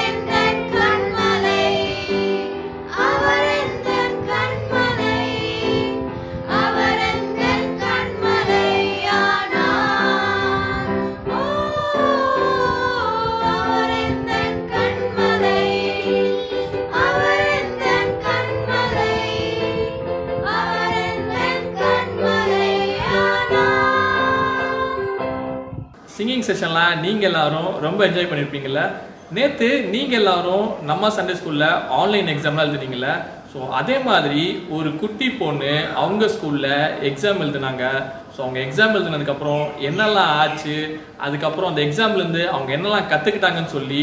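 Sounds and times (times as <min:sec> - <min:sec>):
voices singing: 0:00.0 - 0:25.4
instrumental backing: 0:00.0 - 0:26.1.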